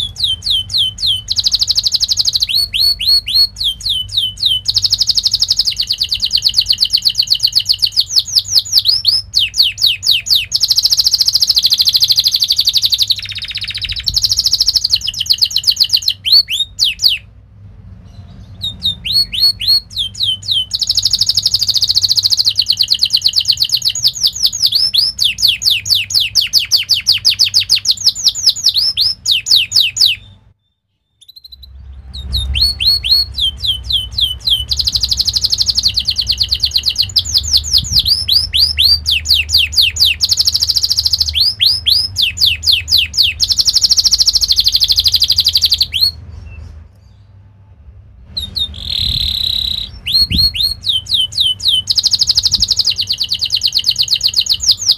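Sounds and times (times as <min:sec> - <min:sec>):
canary singing rapid rolls: 0:00.0 - 0:30.5, 0:31.1 - 0:47.4, 0:48.3 - 0:54.9.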